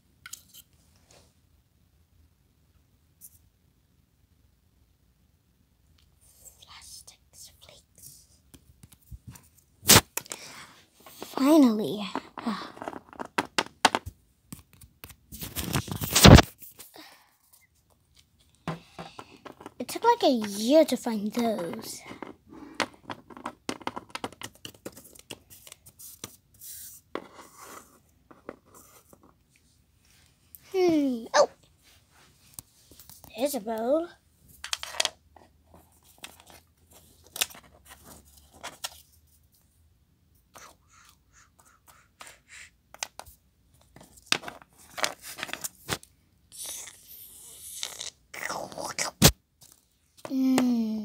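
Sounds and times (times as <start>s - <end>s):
plastic toys clicking and tapping: 18.7s - 20.8s, 21.4s - 25.4s.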